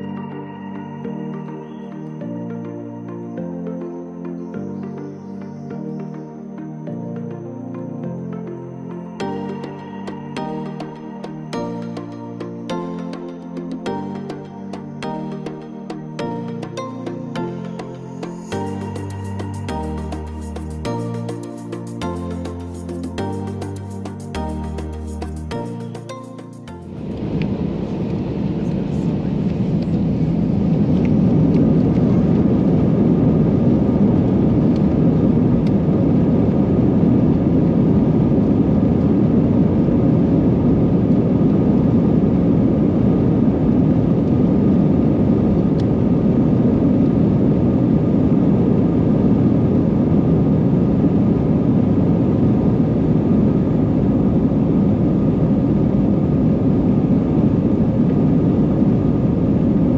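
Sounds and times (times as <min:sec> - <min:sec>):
jet engine noise in cabin: 0:26.0 - 0:59.9.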